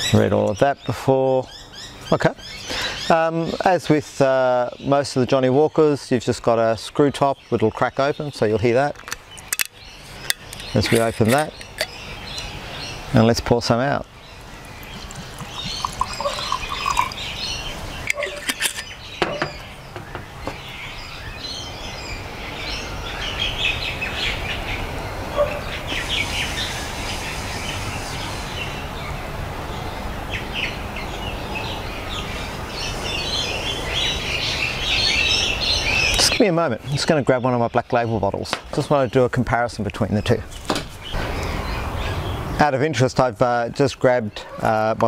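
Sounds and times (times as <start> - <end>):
small birds chirping: 0.0 - 45.0
whisky pouring into a glass: 14.6 - 18.8.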